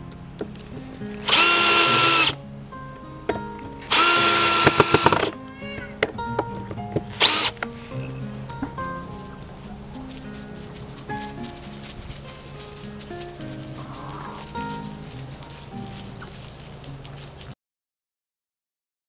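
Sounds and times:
drill clutch clicking: 1.2 - 2.4, 3.9 - 5.3, 7.2 - 7.6
drill motor whine: 1.3 - 2.4, 3.9 - 5.3, 7.2 - 7.5.

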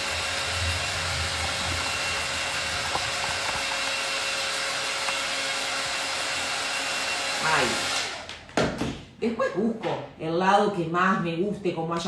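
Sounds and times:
heat gun whirring: 0.0 - 8.4.

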